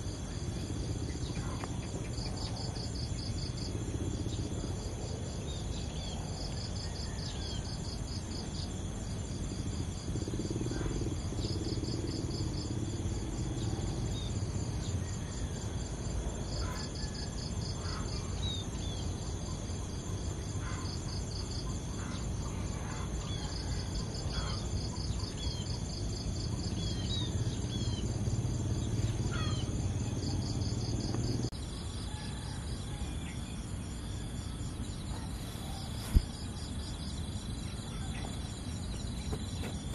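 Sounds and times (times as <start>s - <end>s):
insect chorus buzzing: 0.0s - 39.9s.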